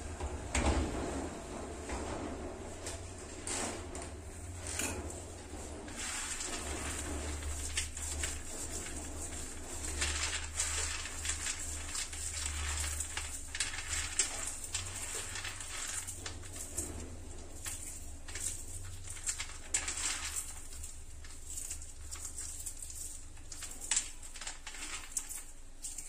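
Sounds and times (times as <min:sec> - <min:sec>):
low steady hum: 0:00.0 - 0:26.0
dry rustling of peanuts: 0:04.4 - 0:26.0.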